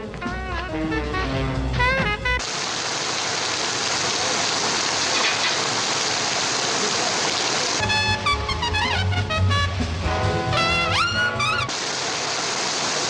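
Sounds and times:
jazz band playing: 0.0s - 2.5s, 7.8s - 11.8s
steady rain: 2.4s - 7.8s, 11.7s - 13.0s.

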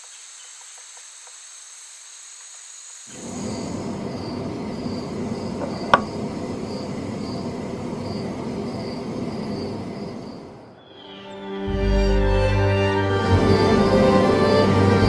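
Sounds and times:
crickets chirping: 0.0s - 11.5s, 13.2s - 15.0s
candle holder knocking on table: 5.6s - 6.1s.

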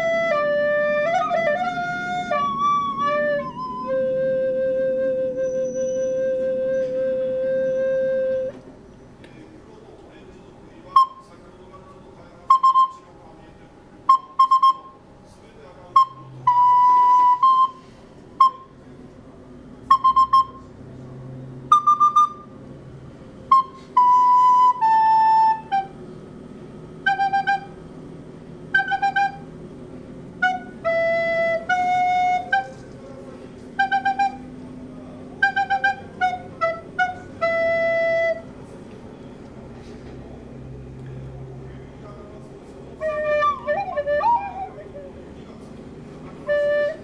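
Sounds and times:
recorder playing: 0.0s - 8.6s, 10.9s - 11.3s, 12.5s - 13.0s, 14.0s - 15.0s, 15.9s - 18.8s, 19.9s - 20.7s, 21.7s - 22.5s, 23.5s - 26.0s, 27.0s - 27.8s, 28.7s - 29.5s, 30.4s - 32.8s, 33.8s - 34.6s, 35.4s - 38.6s, 43.0s - 45.4s, 46.4s - 47.0s.

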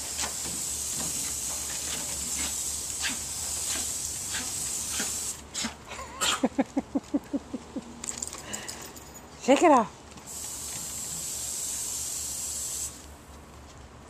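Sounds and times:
hose nozzle spraying water: 0.0s - 5.7s, 10.3s - 13.1s.

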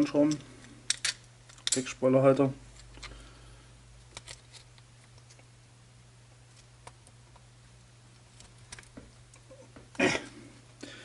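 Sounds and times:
steady low hum: 0.0s - 11.0s
plastic parts clicking: 4.1s - 5.4s.

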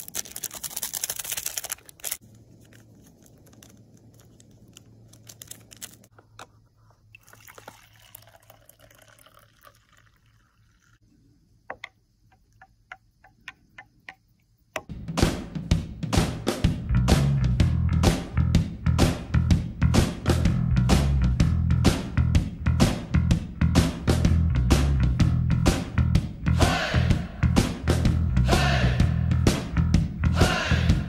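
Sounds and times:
packaging rustling: 0.0s - 6.2s
hot water pouring into mug: 7.2s - 11.0s.

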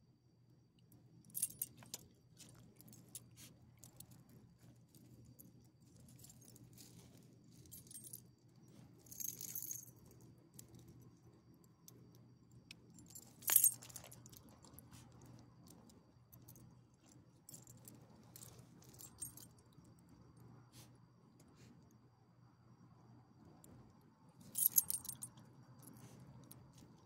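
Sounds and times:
faint low hum: 0.0s - 27.0s
dog collar tags jingling: 13.0s - 14.8s, 24.5s - 26.0s.

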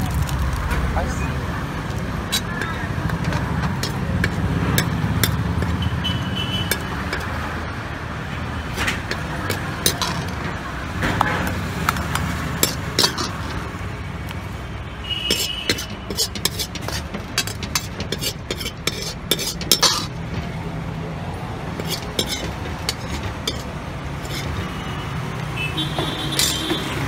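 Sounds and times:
ladle scraping metal pan: 2.2s - 5.8s, 6.6s - 7.4s, 8.6s - 10.6s, 12.4s - 13.8s, 15.3s - 20.8s, 21.7s - 24.8s, 26.3s - 27.0s.

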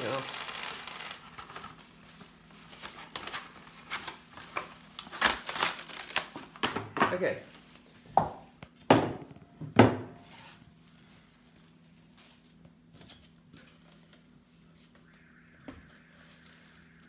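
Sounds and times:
pastry dough rustling: 0.0s - 6.6s, 10.3s - 14.1s.

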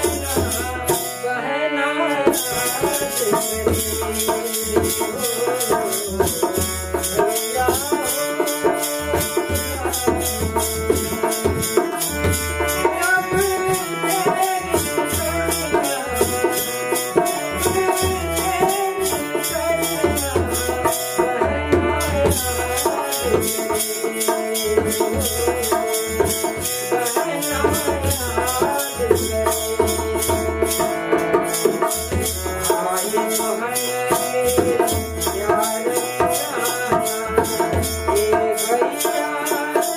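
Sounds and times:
harmonium: 0.0s - 39.9s
man singing: 0.0s - 39.9s
hand drum beating: 2.4s - 39.9s.

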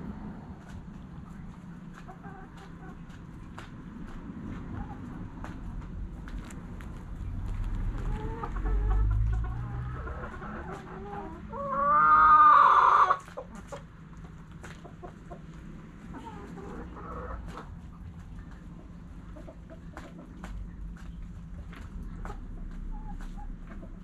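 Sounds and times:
hens clucking softly: 7.9s - 24.0s
pecking taps on ground: 17.4s - 24.0s.

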